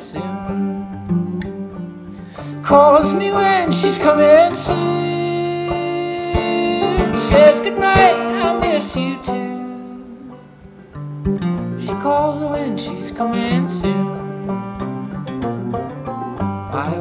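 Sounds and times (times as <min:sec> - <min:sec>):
acoustic guitar picking: 0:00.0 - 0:17.0
men singing in harmony: 0:02.7 - 0:09.8.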